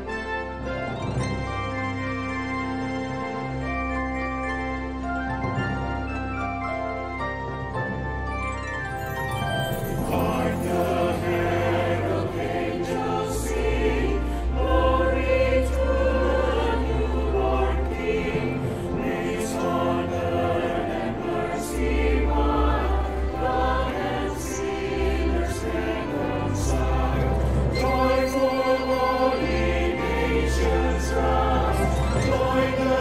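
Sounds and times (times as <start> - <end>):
instrumental ensemble: 0.0 - 33.0
choir singing: 9.8 - 33.0.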